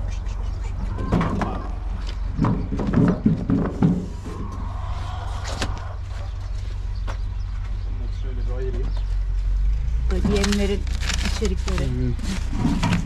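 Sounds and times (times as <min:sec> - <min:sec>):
steady low hum: 0:00.0 - 0:11.1
door rattling thumps: 0:01.0 - 0:04.2.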